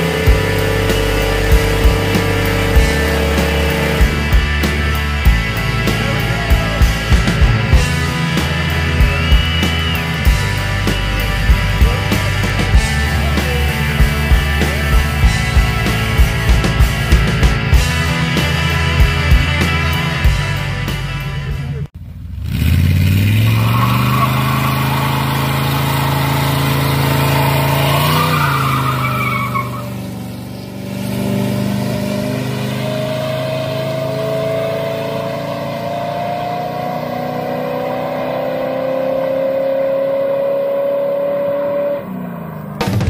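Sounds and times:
pickup truck engine revving: 0.0 - 43.0.

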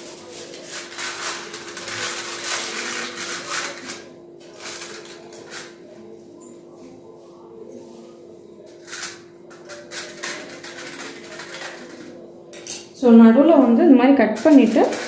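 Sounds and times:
aluminium foil crinkling: 0.0 - 5.9, 8.7 - 12.2, 14.3 - 15.0.

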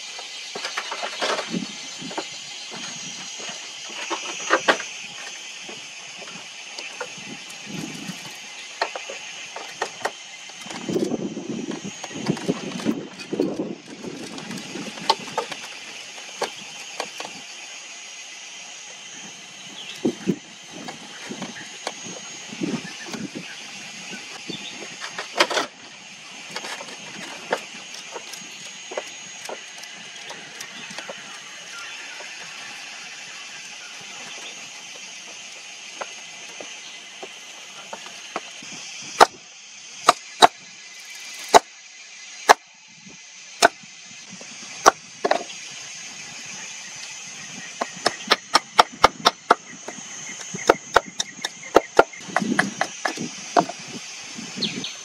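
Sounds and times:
hand tools knocking wood: 50.6 - 53.7.

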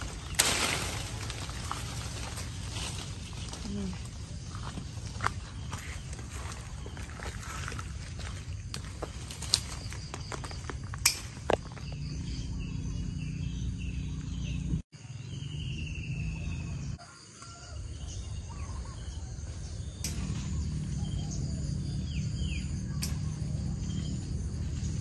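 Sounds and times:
birds chirping: 0.0 - 25.0
insects calling: 0.0 - 25.0
steady low rumble: 19.6 - 25.0.

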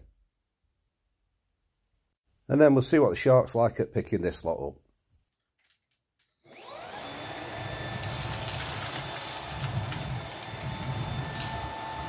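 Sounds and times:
vacuum cleaner motor whine: 6.4 - 12.0.

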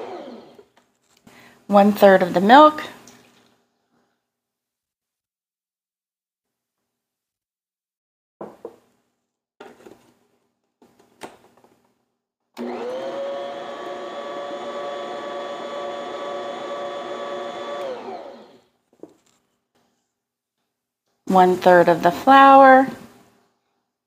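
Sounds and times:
stand mixer motor whine: 0.0 - 0.7, 12.6 - 18.6.

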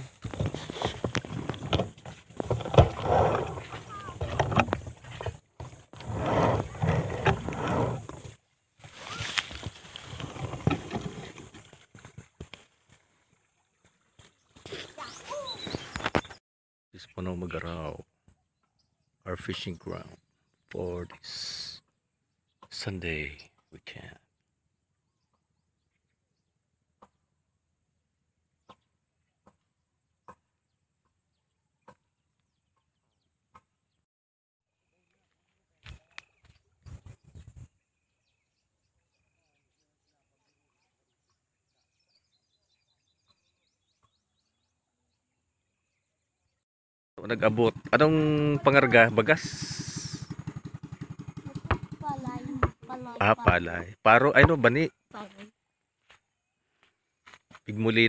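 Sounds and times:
footsteps through dry grass: 8.8 - 10.6.

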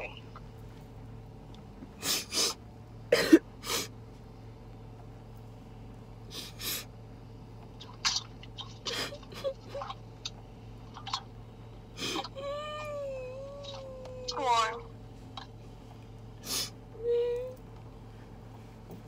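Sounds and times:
faint low hum: 0.0 - 19.0
muffled stifled laughter: 8.9 - 9.9.

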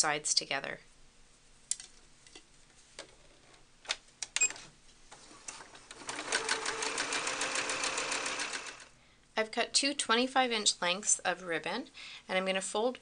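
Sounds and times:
sewing machine stitching: 5.5 - 8.9.

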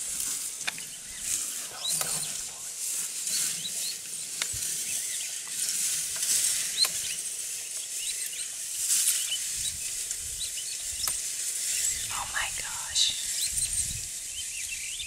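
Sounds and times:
small birds or insects chirping: 0.0 - 15.0
steady high hiss: 0.0 - 15.0.

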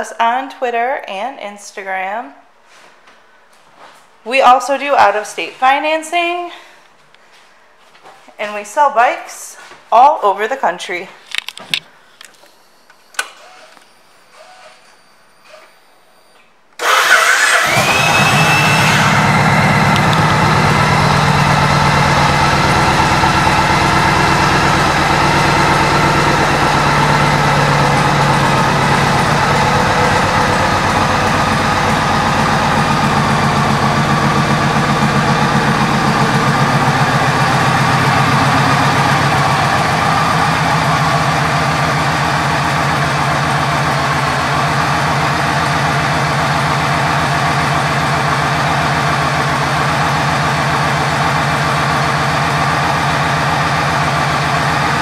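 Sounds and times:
motorcycle engine idling: 17.6 - 55.0.

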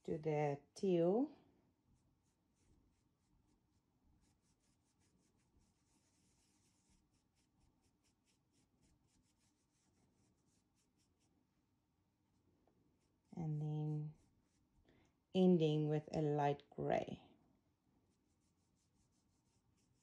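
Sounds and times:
faint paintbrush strokes: 0.0 - 20.0.

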